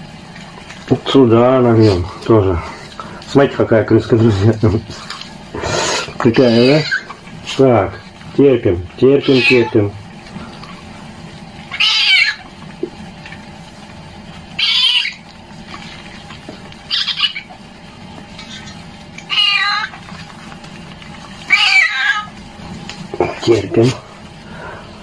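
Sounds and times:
kitten meowing: 6.3 - 7.0, 9.2 - 9.9, 11.7 - 12.4, 14.6 - 15.2, 19.3 - 19.9, 21.5 - 22.3.

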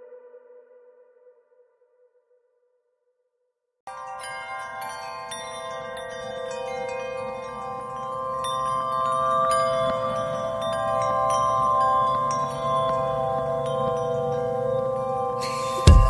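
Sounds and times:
chimes and bell-like tinkling: 3.9 - 16.0.

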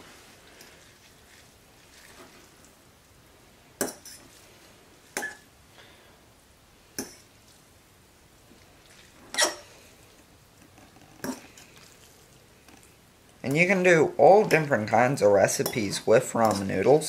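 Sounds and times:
metal fork clinking against bowl: 15.6 - 16.6.

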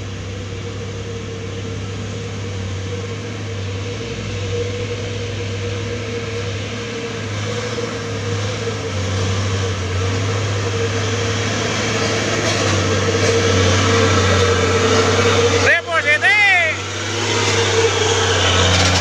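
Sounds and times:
truck diesel engine labouring: 0.0 - 19.0.

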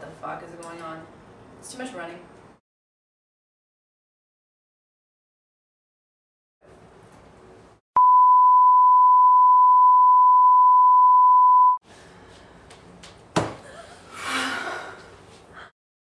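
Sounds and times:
test tone: 8.0 - 11.8.

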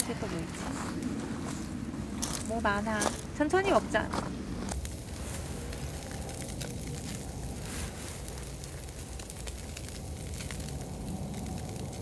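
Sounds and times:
crackles and pops from coals: 0.0 - 12.0
meat sizzling on a grill: 4.6 - 12.0.

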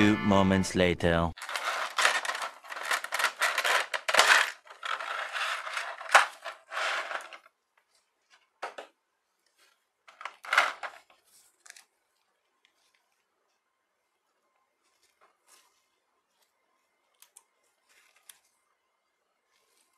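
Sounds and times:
plastic blister tray crackling: 1.4 - 13.3.

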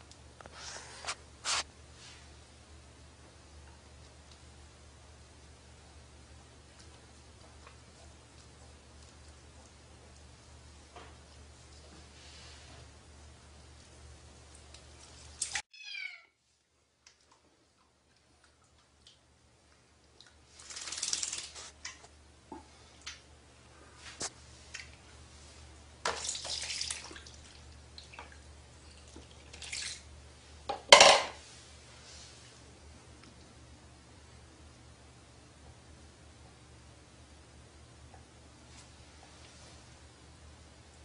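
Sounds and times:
kitten mewing: 15.7 - 16.3
water splashing in plastic basin: 20.2 - 22.0, 26.0 - 28.4, 29.0 - 30.1.

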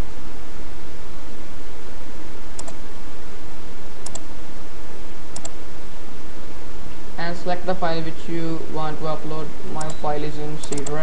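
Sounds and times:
computer mouse clicks: 2.6 - 2.8, 4.0 - 4.3, 5.4 - 5.6, 9.8 - 10.0, 10.6 - 11.0.

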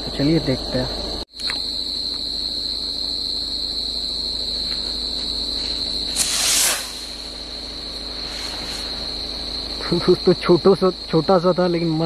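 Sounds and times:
crickets chirping: 0.0 - 12.0
rocket launching whoosh: 6.1 - 7.3.

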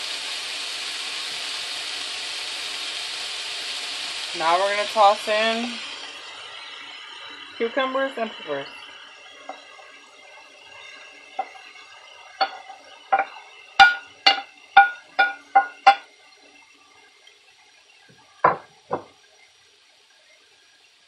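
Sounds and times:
wooden spatula knocking on plate: 12.4 - 16.0, 18.4 - 19.1.

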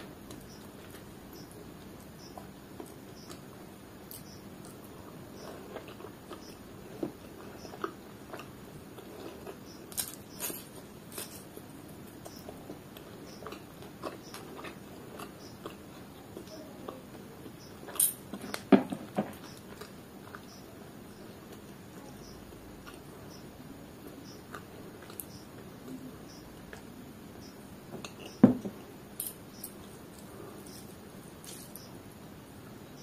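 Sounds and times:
wet chewing and smacking: 4.1 - 20.7.

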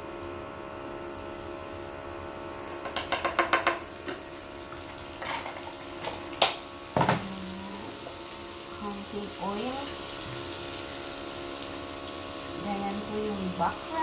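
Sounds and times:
egg sizzling in oil: 1.0 - 14.0
utensil knocking on pan: 2.8 - 4.2.

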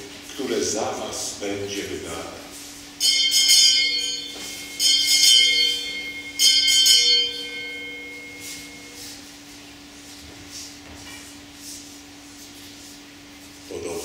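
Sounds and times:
altar bells ringing: 3.0 - 9.2
low steady tone: 3.0 - 9.2.

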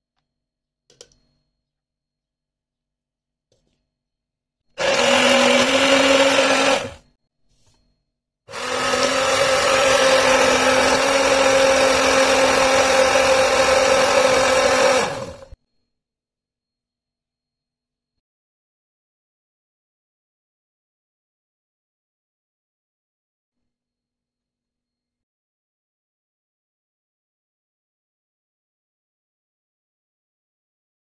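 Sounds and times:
stick blender motor humming: 4.8 - 7.1, 8.5 - 15.6.

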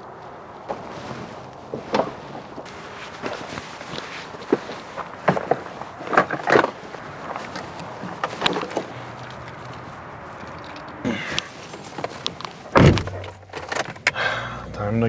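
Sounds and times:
rustling: 0.0 - 14.1
gear clattering into van: 0.6 - 14.4
car door opening: 6.1 - 14.2.

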